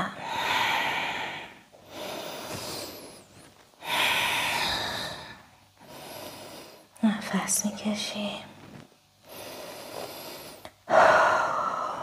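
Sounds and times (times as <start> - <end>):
person breathing deeply: 0.2 - 7.0, 9.2 - 12.0.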